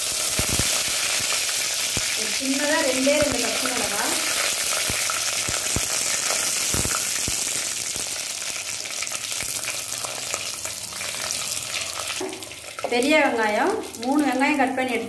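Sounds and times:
hot oil sizzling: 0:00.0 - 0:15.0
oil popping: 0:02.8 - 0:12.9.

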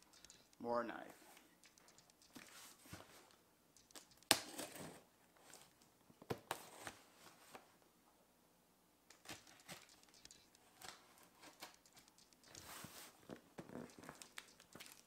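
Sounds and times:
sharp click: 0:00.0 - 0:00.6, 0:01.6 - 0:02.5, 0:03.8 - 0:04.5, 0:09.1 - 0:12.8.

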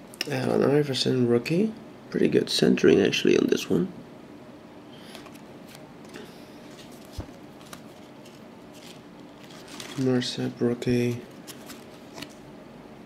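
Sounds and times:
trading cards sliding: 0:05.0 - 0:10.2, 0:11.3 - 0:12.4.

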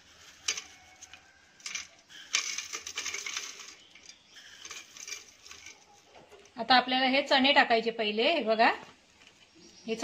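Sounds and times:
dry snacks crackling onto a plate: 0:00.0 - 0:06.6.

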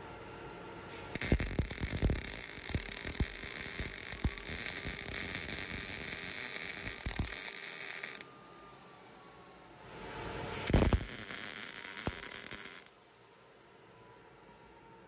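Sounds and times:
welder arc crackling hiss: 0:00.9 - 0:08.2, 0:10.6 - 0:12.9.

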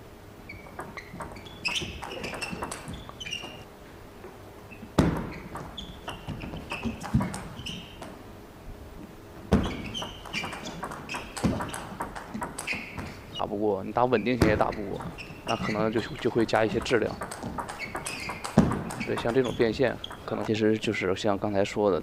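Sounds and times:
sharp table tennis strikes: 0:00.5 - 0:03.6, 0:05.0 - 0:08.2, 0:09.5 - 0:13.2, 0:14.4 - 0:20.5
table tennis ball clicking: 0:00.5 - 0:03.6, 0:05.0 - 0:08.2, 0:09.6 - 0:13.1, 0:14.4 - 0:20.5.

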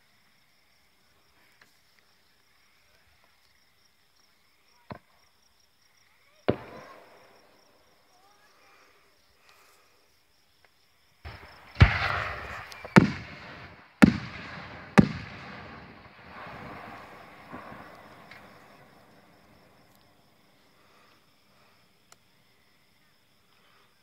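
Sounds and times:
rolling echo: 0:06.5 - 0:07.6, 0:11.3 - 0:20.2
firework shells bursting: 0:11.3 - 0:20.2.

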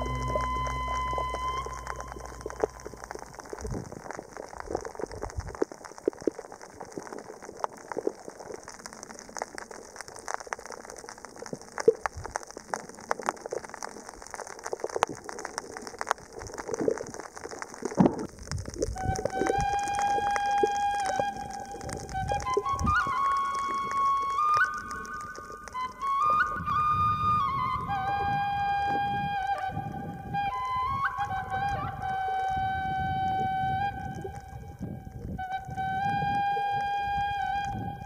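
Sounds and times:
flute-like music note: 0:00.0 - 0:03.3, 0:19.0 - 0:38.0
steady high hiss: 0:00.0 - 0:04.2
underwater reef clicks and pops: 0:00.0 - 0:38.0.

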